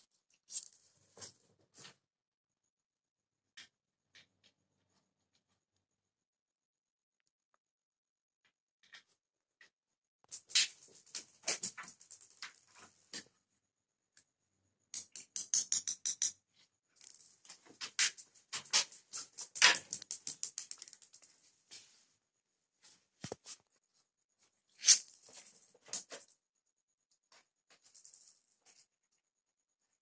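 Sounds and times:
small ball bouncing on hard floor: 0:17.0 - 0:21.3.

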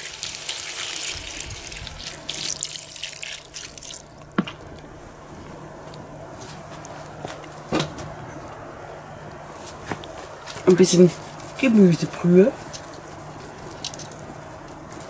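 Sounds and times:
frying hiss: 0:00.0 - 0:04.0
water splashing into pot: 0:00.0 - 0:04.4.

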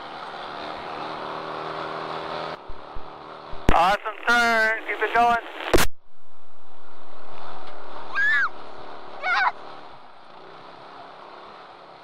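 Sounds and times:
kart engine and wind rush: 0:00.0 - 0:03.7, 0:06.8 - 0:12.0
driver shouting excitedly: 0:09.2 - 0:09.6.

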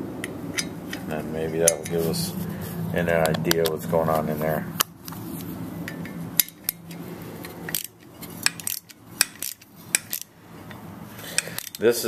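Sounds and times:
metal tools clinking on engine: 0:00.2 - 0:02.3, 0:05.8 - 0:12.0.

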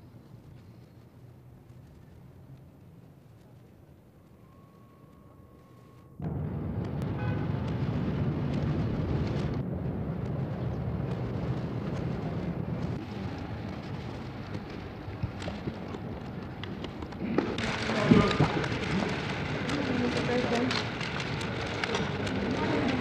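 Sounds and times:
low rumbling noise: 0:00.0 - 0:23.0
scattered clicks: 0:12.8 - 0:23.0.

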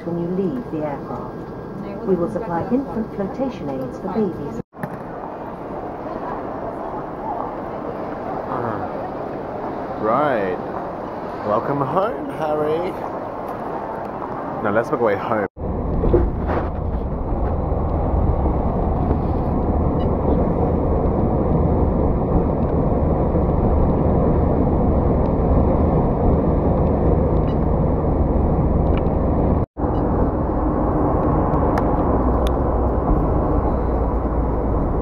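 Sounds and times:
road and engine noise in car: 0:15.6 - 0:35.0.

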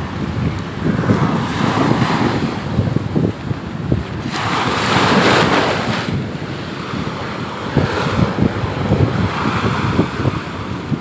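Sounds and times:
surf breaking on beach: 0:00.0 - 0:11.0
wind buffeting microphone: 0:00.0 - 0:11.0.

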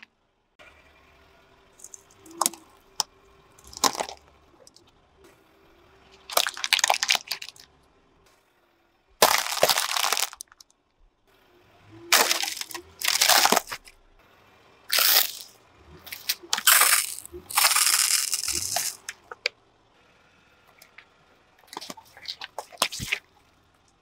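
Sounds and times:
tyre crushing plastic: 0:03.6 - 0:04.2, 0:06.3 - 0:07.6, 0:09.2 - 0:10.6, 0:12.1 - 0:13.9, 0:14.9 - 0:15.5, 0:16.1 - 0:19.3
liquid squirting: 0:16.0 - 0:19.3, 0:21.7 - 0:23.2.

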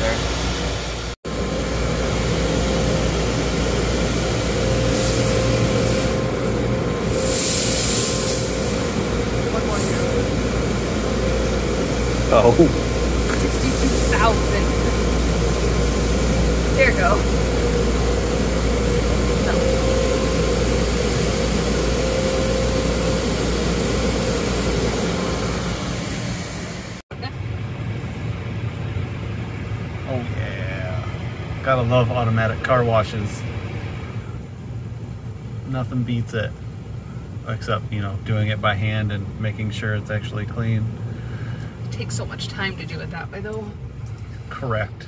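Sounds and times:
car wash machinery hum: 0:00.0 - 0:45.0
hiss: 0:04.7 - 0:06.2, 0:07.0 - 0:10.0.

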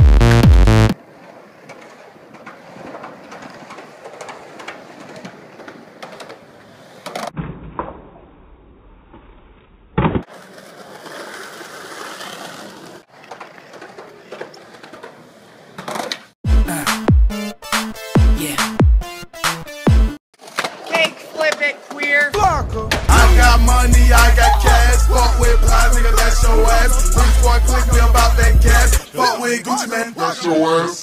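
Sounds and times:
electronic music: 0:00.0 - 0:01.0, 0:16.5 - 0:20.2, 0:23.1 - 0:29.0
skateboard wheels rolling on asphalt: 0:00.9 - 0:07.4, 0:09.0 - 0:16.4, 0:20.4 - 0:22.4
skateboard clacking on ground: 0:01.0 - 0:07.4, 0:10.2 - 0:16.3, 0:20.4 - 0:22.4.

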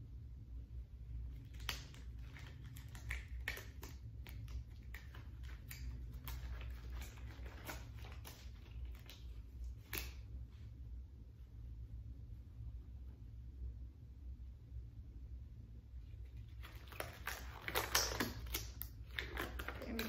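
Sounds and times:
surgical gloves rustling: 0:01.2 - 0:10.9
paper wrapper crinkling: 0:01.3 - 0:10.2, 0:16.2 - 0:20.0.

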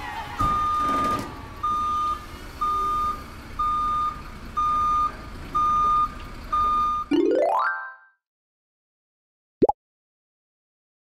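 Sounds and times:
reversing alarm beeping: 0:00.5 - 0:07.1.

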